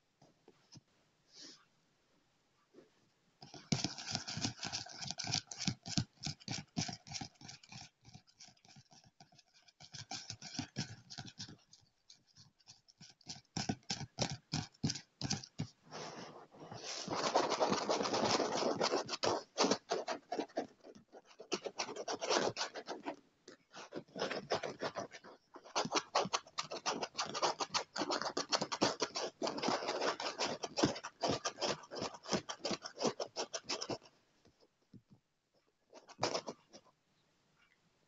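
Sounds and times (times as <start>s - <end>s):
fingernails scratching on chair: 16.0s - 23.2s.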